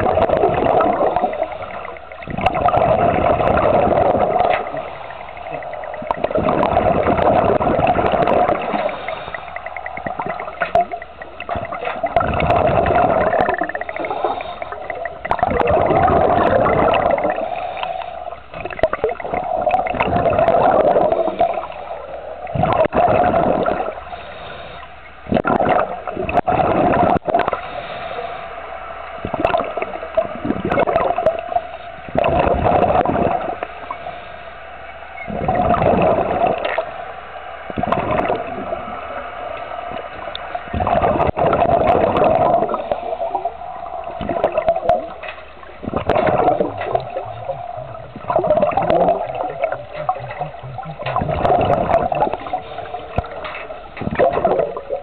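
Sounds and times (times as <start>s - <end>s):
underwater water gurgling: 0.0s - 55.0s.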